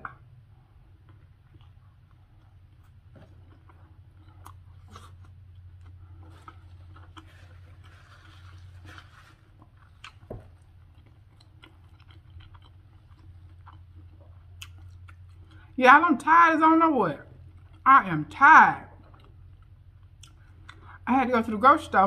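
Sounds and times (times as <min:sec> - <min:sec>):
person chewing food: 0:00.0 - 0:15.8, 0:17.3 - 0:17.9, 0:18.9 - 0:21.0
low steady hum: 0:00.0 - 0:22.0
paper napkin rustling: 0:07.3 - 0:09.6.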